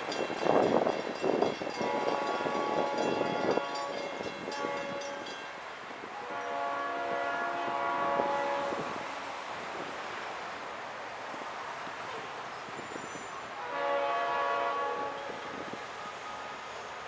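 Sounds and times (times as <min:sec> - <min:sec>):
locomotive air horn blasts: 0:01.7 - 0:05.4, 0:06.1 - 0:09.2, 0:13.6 - 0:16.9.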